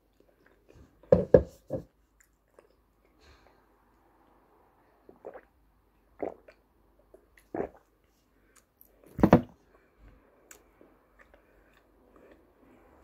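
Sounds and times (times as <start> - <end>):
person chewing clay: 10.1 - 12.8.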